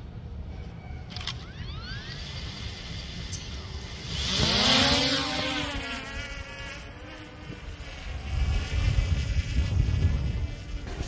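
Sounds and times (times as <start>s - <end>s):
drone propellers buzzing whine: 0.0s - 11.0s.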